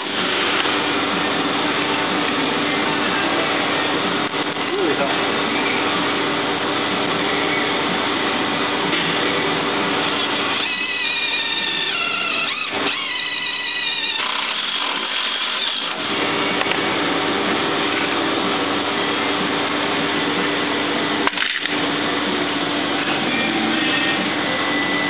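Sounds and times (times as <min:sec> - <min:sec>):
steady whirring: 0:00.0 - 0:25.0
cordless drill motor whine: 0:10.1 - 0:16.1
sharp click: 0:21.2 - 0:21.8.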